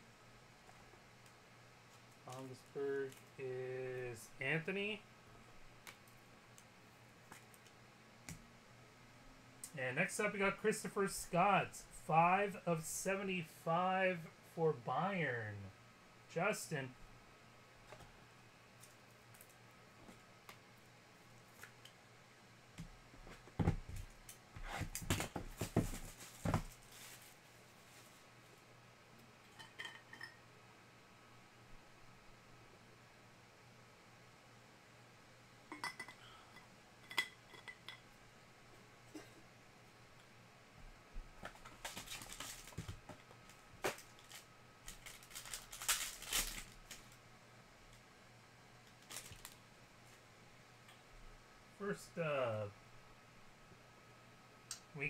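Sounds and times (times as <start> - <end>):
foil wrapper crinkling: 41.6 - 47.2, 48.9 - 49.6.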